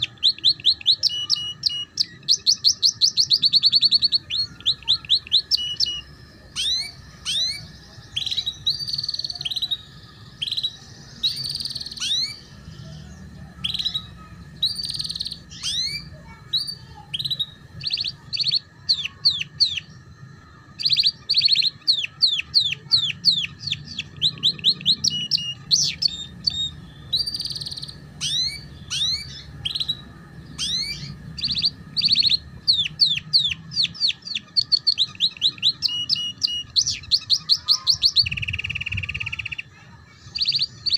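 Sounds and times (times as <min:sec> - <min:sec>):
canary singing chirps and trills: 0:00.0 - 0:40.9.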